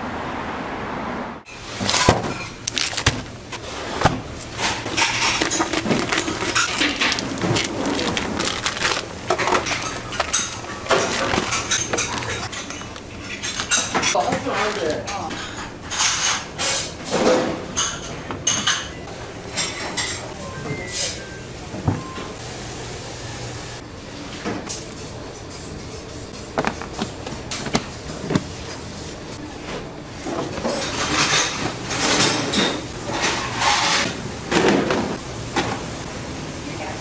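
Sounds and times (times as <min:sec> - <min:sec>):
dishes and utensils clinking: 0:04.0 - 0:21.3, 0:30.2 - 0:35.0.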